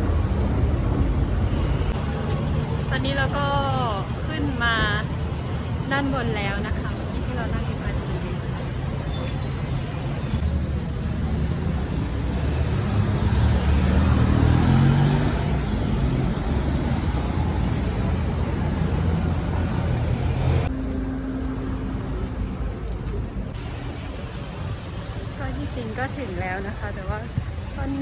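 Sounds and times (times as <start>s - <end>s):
vehicle engines passing on street: 0.0s - 28.0s
vehicle accelerating by: 12.2s - 17.6s.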